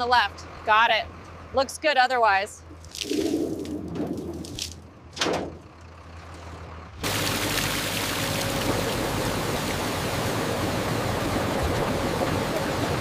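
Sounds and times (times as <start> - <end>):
water spraying over grapes: 7.0 - 13.0.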